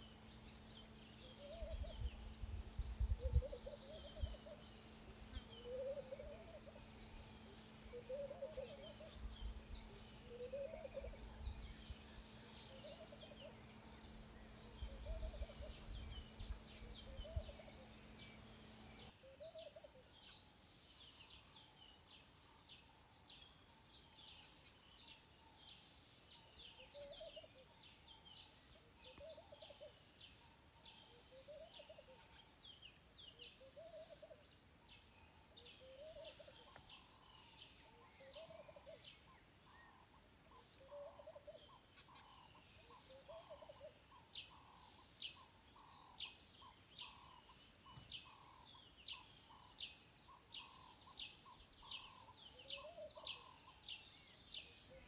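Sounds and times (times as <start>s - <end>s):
low rising and falling bird call: 3.0s - 19.9s, 33.4s - 34.5s, 35.6s - 39.9s.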